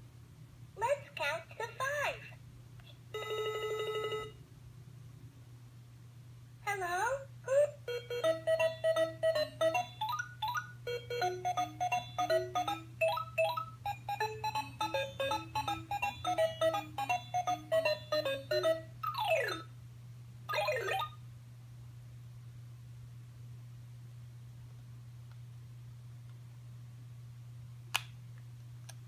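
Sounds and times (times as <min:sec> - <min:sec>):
toy phone electronic tune: 0:07.9 - 0:19.7.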